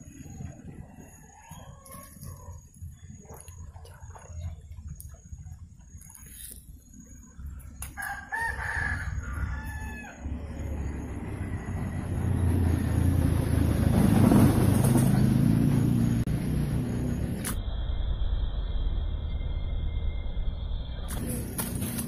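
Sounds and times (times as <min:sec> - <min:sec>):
rooster crowing: 0:08.0 - 0:10.5
low rumbling noise: 0:08.9 - 0:22.0.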